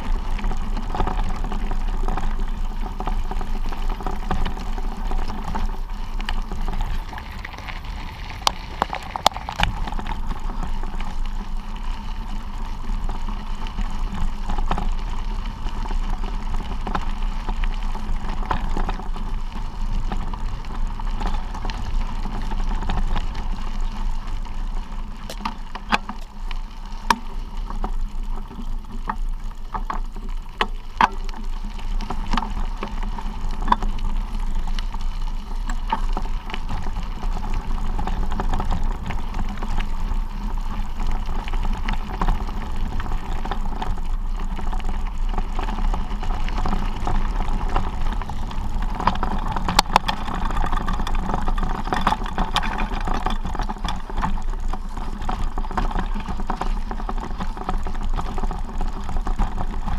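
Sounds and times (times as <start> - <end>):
bicycle tyres rumbling on gravel: 0.0 - 59.9
stones clicking and rattling: 2.9 - 11.2
wind on microphone: 4.2 - 11.6.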